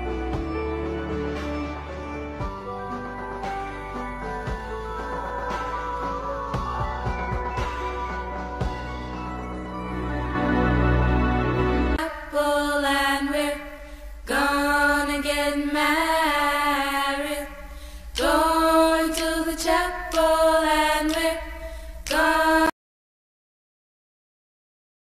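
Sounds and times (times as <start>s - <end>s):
background music: 0.0s - 16.7s
chant-like singing: 2.4s - 9.2s, 12.0s - 22.7s.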